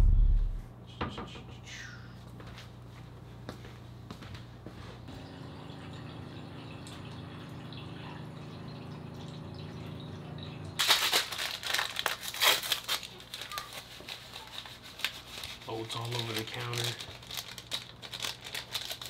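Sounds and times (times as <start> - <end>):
loud crinkling and rustling: 10.8 - 19.0.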